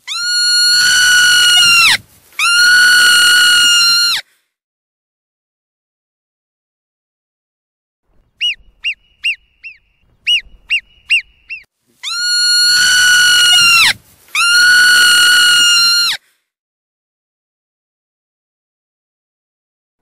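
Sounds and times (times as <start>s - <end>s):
marmot short high chirps: 8.4s - 14.5s
marmot long whistles: 8.4s - 16.2s.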